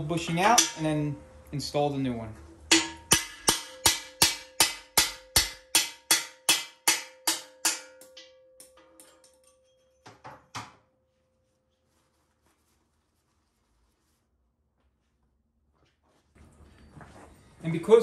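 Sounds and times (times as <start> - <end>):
hammer striking metal with ringing: 0.0 - 1.4, 2.7 - 10.9.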